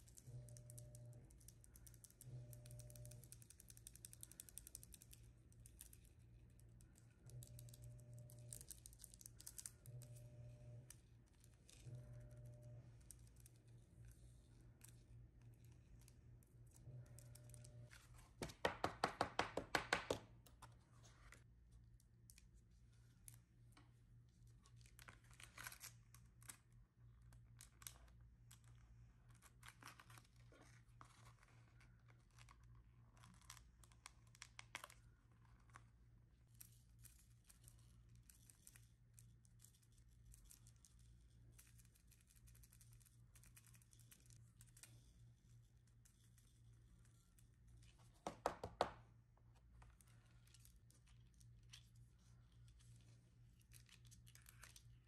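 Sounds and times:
low steady hum: 0:00.0 - 0:18.7, 0:48.9 - 0:55.0.

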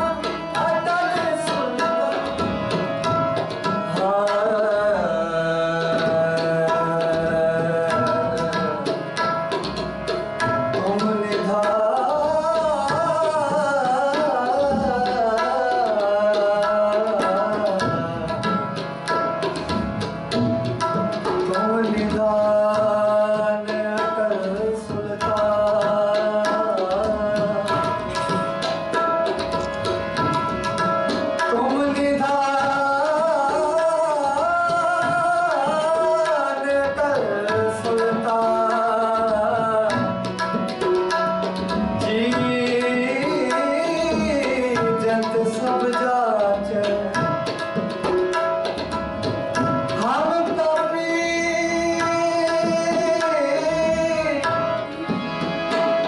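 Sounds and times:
man singing: 0:00.0 - 0:02.5, 0:03.9 - 0:09.2, 0:10.8 - 0:18.6, 0:21.4 - 0:28.4, 0:31.4 - 0:40.3, 0:42.0 - 0:47.5, 0:49.9 - 0:54.9
harmonium: 0:00.0 - 0:56.0
tabla drumming: 0:00.0 - 0:56.0.

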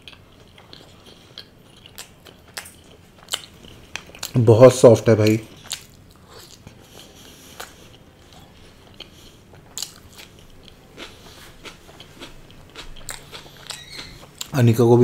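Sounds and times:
close chewing and biting: 0:00.0 - 0:04.4, 0:05.2 - 0:14.6.

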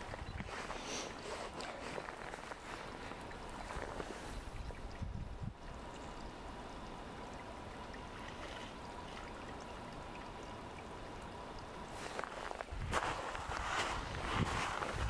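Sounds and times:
meltwater running: 0:00.0 - 0:04.6, 0:05.6 - 0:15.0.

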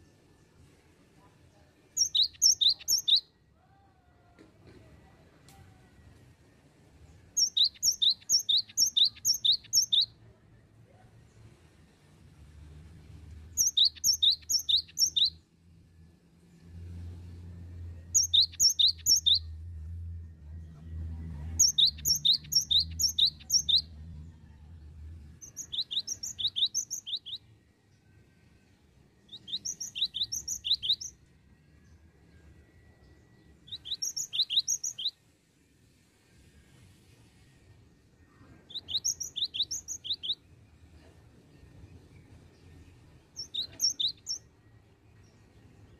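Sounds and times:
bird singing ringing notes: 0:02.0 - 0:03.4, 0:07.3 - 0:10.2, 0:13.6 - 0:15.4, 0:18.1 - 0:19.8, 0:21.6 - 0:24.0, 0:25.4 - 0:35.3, 0:38.5 - 0:40.5, 0:42.2 - 0:45.4
faint low hum: 0:19.2 - 0:34.2.

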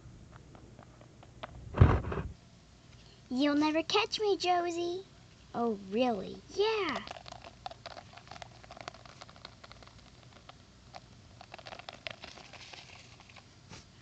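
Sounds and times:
plastic figurines ticking on asphalt: 0:06.6 - 0:12.6.

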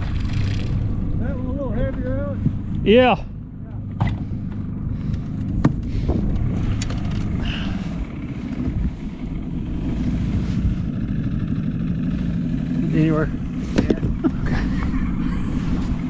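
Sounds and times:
gear clicking and knocking: 0:00.0 - 0:00.8
outboard motor rumble: 0:00.0 - 0:16.0.

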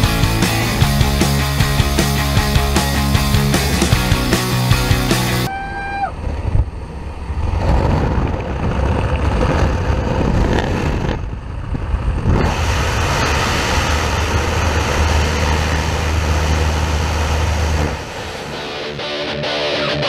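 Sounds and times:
propeller engine droning: 0:00.0 - 0:20.0
wind on microphone: 0:05.5 - 0:18.5.

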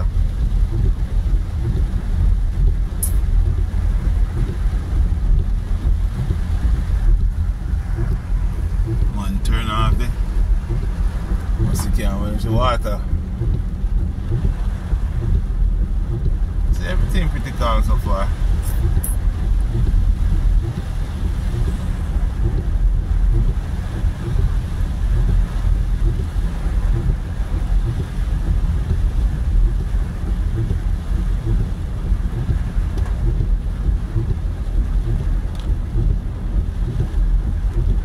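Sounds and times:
low rumble: 0:00.0 - 0:38.0
rain on car: 0:00.0 - 0:38.0
tyres on wet road: 0:00.0 - 0:38.0.

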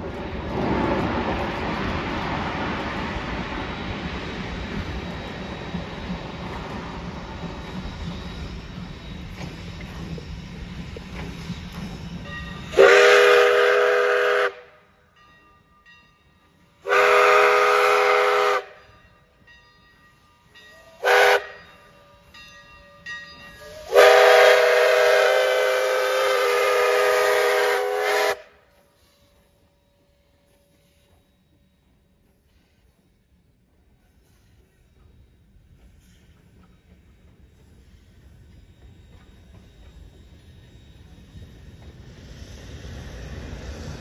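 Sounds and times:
steam whistle blasts: 0:12.6 - 0:14.9, 0:16.8 - 0:18.8, 0:20.8 - 0:21.6, 0:23.6 - 0:28.7.

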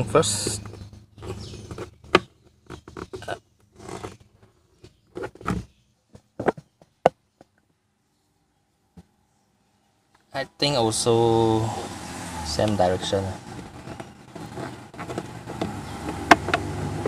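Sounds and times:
plastic stopper clicking and scraping: 0:00.5 - 0:05.7, 0:13.5 - 0:16.7.

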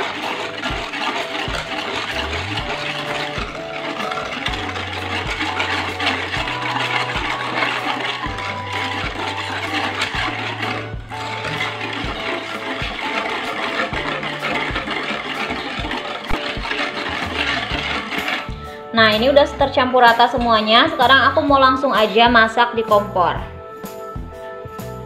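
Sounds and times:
whisk swishing in saucepan: 0:00.0 - 0:23.4
background music: 0:00.0 - 0:25.0.

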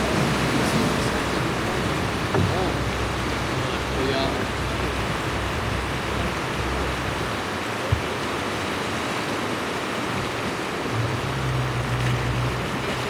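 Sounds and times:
sea surf against rocks: 0:00.0 - 0:13.0
low hum: 0:10.9 - 0:13.0.

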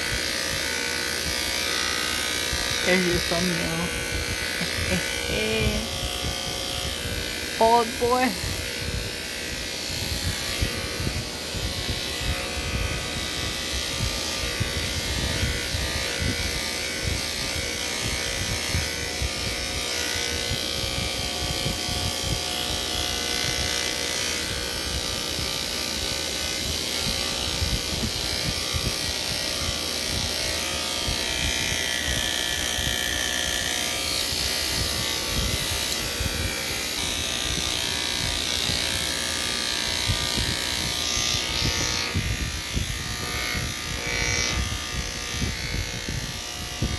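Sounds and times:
electric hair clippers shaving hair: 0:00.0 - 0:46.9.

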